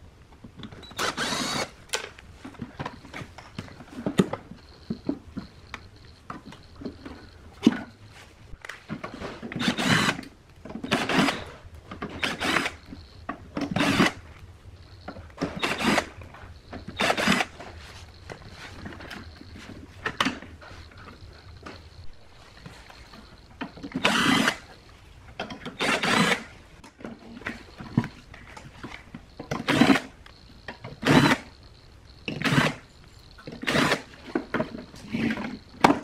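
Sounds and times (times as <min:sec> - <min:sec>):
cordless drill running: 0:00.9 - 0:01.7, 0:09.6 - 0:10.3, 0:10.9 - 0:11.6, 0:12.2 - 0:12.8, 0:13.8 - 0:14.2, 0:15.5 - 0:16.2, 0:16.9 - 0:17.5, 0:24.0 - 0:24.6, 0:25.8 - 0:26.5, 0:31.0 - 0:31.5, 0:32.4 - 0:32.8, 0:33.6 - 0:34.1.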